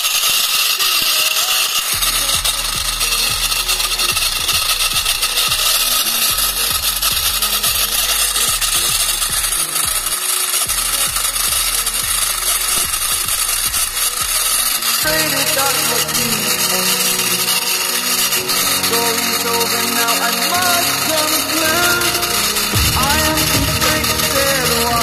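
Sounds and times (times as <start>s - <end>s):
grass cutting rasp: 0.0s - 25.0s
small motor whirring: 0.0s - 25.0s
low hum: 2.0s - 10.1s, 20.6s - 25.0s.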